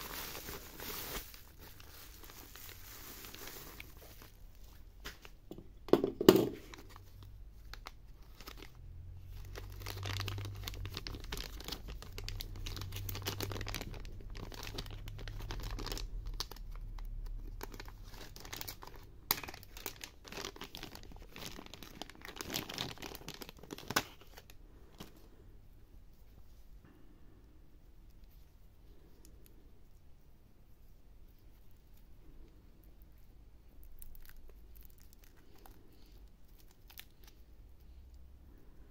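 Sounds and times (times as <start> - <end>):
plastic packaging crinkling: 0.0 - 5.5, 6.3 - 25.2, 33.7 - 37.4.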